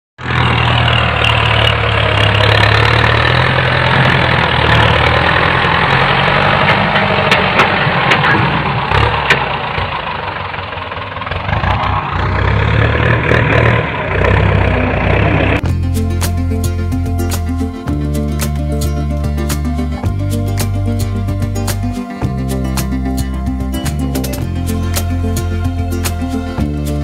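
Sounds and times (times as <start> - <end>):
tractor engine running: 0.2 - 27.0.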